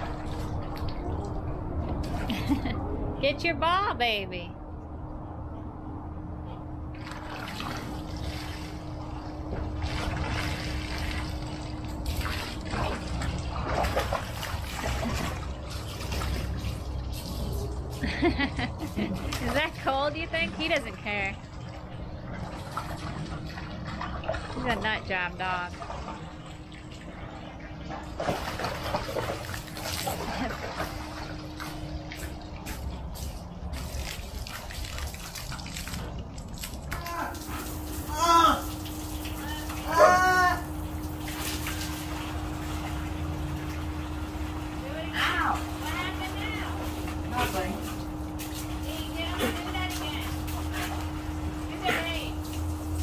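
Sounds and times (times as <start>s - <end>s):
hose water splashing into pool: 6.9s - 53.0s
dog splashing in water: 7.0s - 17.6s, 28.0s - 40.2s, 41.0s - 44.8s.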